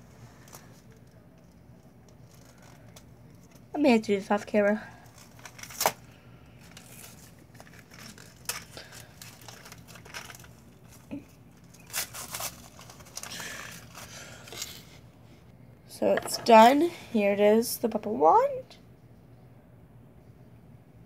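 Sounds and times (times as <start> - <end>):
plastic crinkling: 0.4 - 3.7, 4.9 - 15.0.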